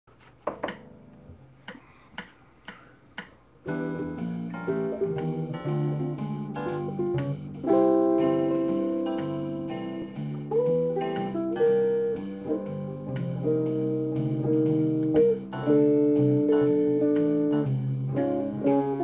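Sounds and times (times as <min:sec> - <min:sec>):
electric guitar jazz chords: 0:03.6 - 0:19.0.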